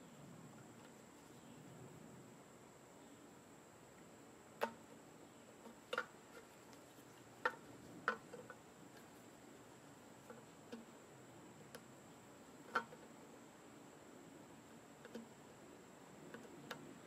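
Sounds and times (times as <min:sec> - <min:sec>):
faint ticks: 0:10.2 - 0:11.0, 0:12.6 - 0:13.2, 0:14.6 - 0:15.6.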